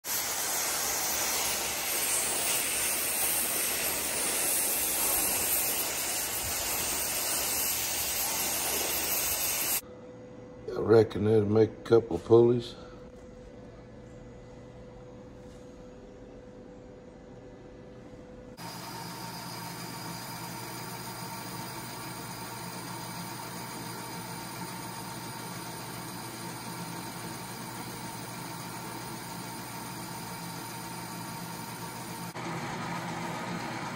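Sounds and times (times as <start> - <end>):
cutting torch hissing: 0.0 - 9.8, 18.6 - 32.4
metal lathe humming with high whine: 18.6 - 33.9.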